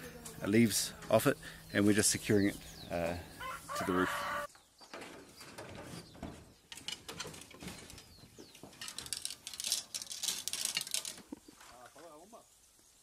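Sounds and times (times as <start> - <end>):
bird chirping: 0.2 - 9.5
bamboo knocking and clattering: 4.8 - 12.0.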